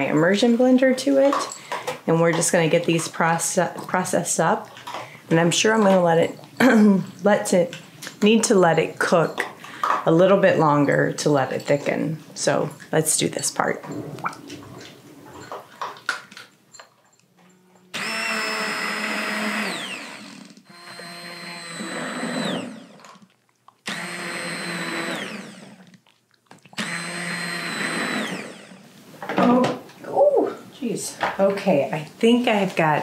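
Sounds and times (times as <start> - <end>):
immersion blender whining: 17.9 - 26.0, 26.8 - 29.0.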